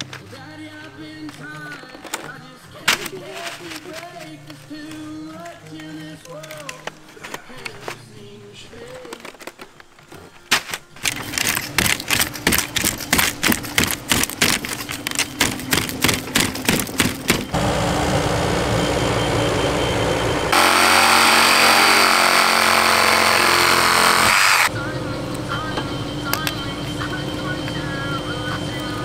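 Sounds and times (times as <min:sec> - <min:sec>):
machine noise: 0:11.0 - 0:29.0.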